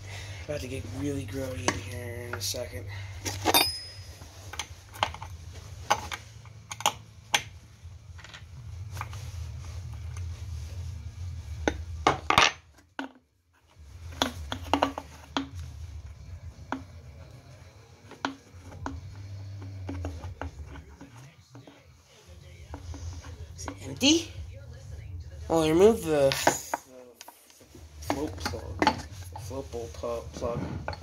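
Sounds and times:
steady low hum: 0.0 - 12.7, 13.7 - 31.0
metal tools clinking on parts: 3.2 - 4.7.

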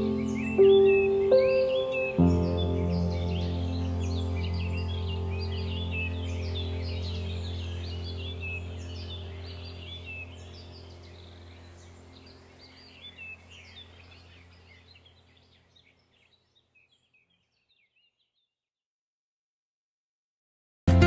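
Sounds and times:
birdsong chirps and twitters: 0.0 - 18.6
low steady hum: 2.6 - 15.9.

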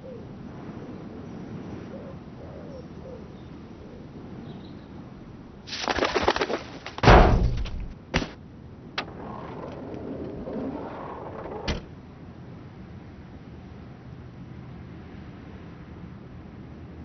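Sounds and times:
pigeon wings flapping: 5.7 - 7.3
sharp knocks: 6.9 - 8.4
car bonnet springing open thump: 7.0 - 8.4.

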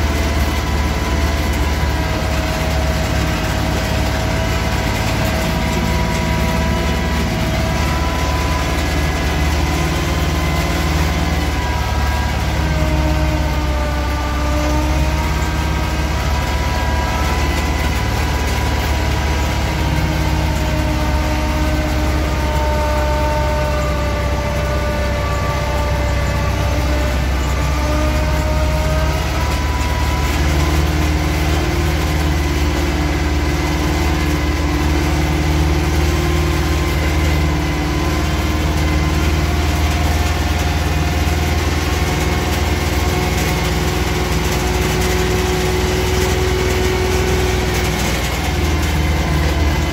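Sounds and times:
small vehicle engine running: 0.0 - 49.9.

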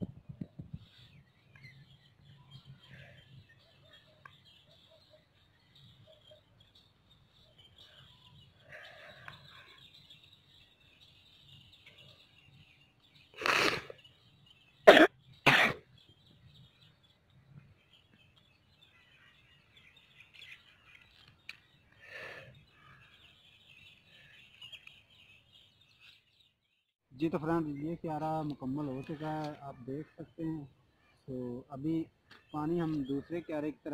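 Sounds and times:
birds chirping faintly: 0.0 - 33.9
person coughing: 14.9 - 15.8.

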